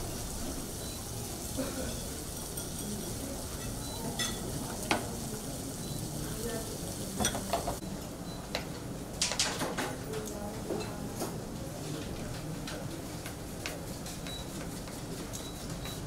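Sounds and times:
frying sizzle: 0.0s - 7.8s
spoon stirring in a bowl: 2.4s - 4.5s.

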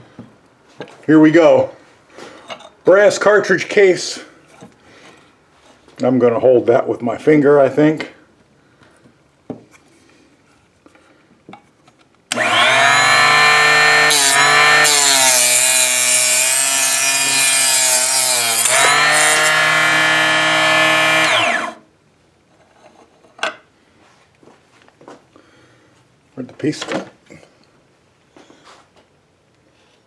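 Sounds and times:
cutoff saw whining: 12.3s - 21.8s
saw blade cutting metal: 12.3s - 21.8s.

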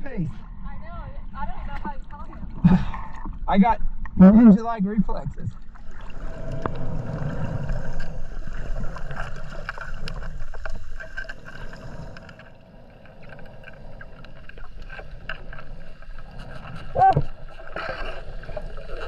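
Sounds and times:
muffled underwater rushing: 0.3s - 19.0s
faint clicks and crackles: 5.1s - 19.0s.

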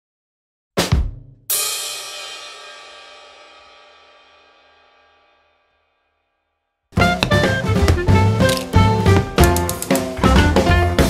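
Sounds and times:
cymbal crash: 1.6s - 5.8s.

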